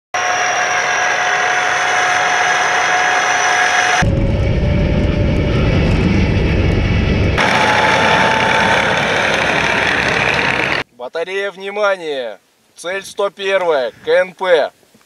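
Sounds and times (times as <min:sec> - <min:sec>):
deep engine and track rumble: 0:00.2 - 0:10.8
tracks and drivetrain whine: 0:00.2 - 0:10.8.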